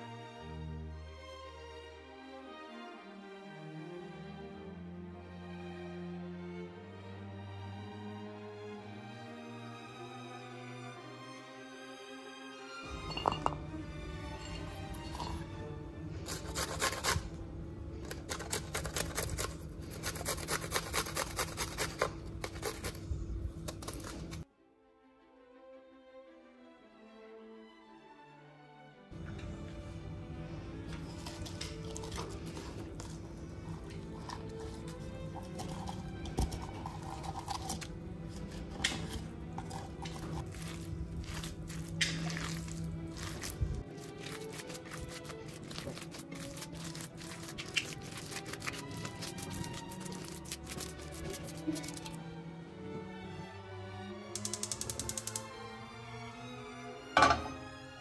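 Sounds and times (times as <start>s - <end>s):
soft background music: 0.0s - 58.0s
utensils clinking against a bowl: 12.9s - 15.5s
garlic rasping on metal grater: 16.3s - 17.3s, 18.0s - 23.0s, 34.4s - 52.2s.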